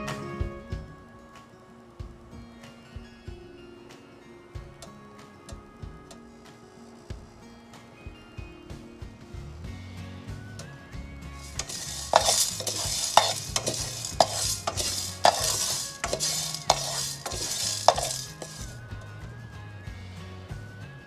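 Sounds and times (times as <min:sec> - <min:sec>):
grains scraping and rattling in pan: 0:11.4 - 0:18.8.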